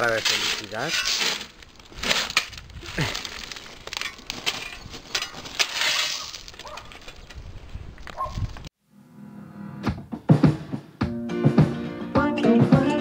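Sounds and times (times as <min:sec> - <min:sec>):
shovel scraping into gravel: 0:00.0 - 0:07.4.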